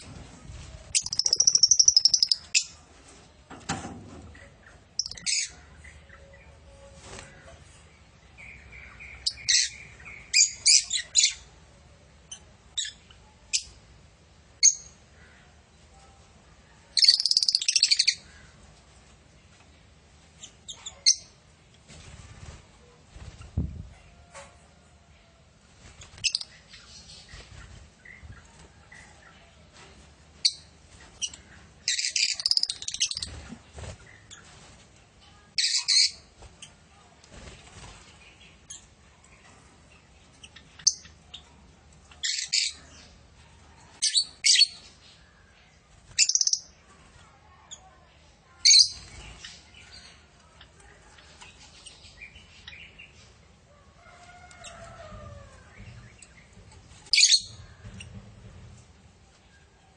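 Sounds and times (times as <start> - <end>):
quiet bird twittering: 0.9 - 2.7
lovebirds chirping shrilly: 0.9 - 2.8, 8.4 - 11.4, 17.0 - 18.4, 31.2 - 33.3, 46.2 - 46.6.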